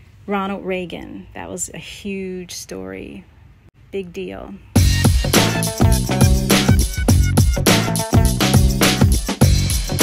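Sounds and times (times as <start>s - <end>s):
music with quick beat and bass: 4.8s - 10.0s.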